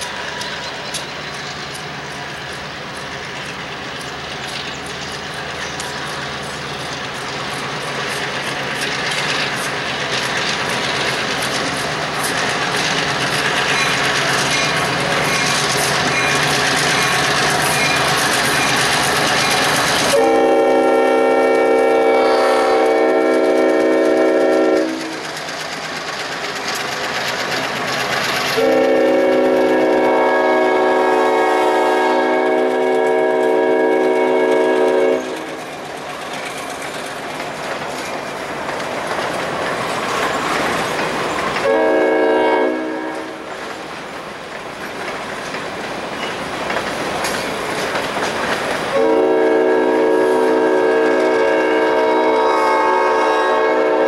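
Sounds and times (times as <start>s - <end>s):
train rolling on rails: 0.0s - 54.0s
locomotive horn blasts: 20.1s - 25.2s, 28.6s - 35.6s, 41.6s - 43.4s, 48.9s - 54.0s.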